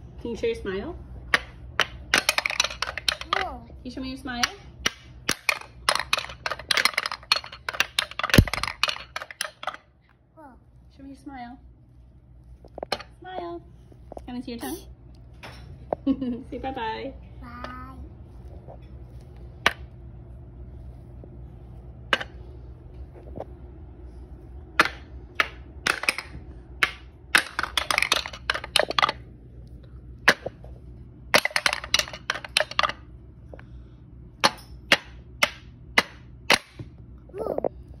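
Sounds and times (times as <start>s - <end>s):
wooden balls clacking down ramps: 1.3s - 3.4s, 4.4s - 9.8s, 24.8s - 29.2s, 31.4s - 33.0s.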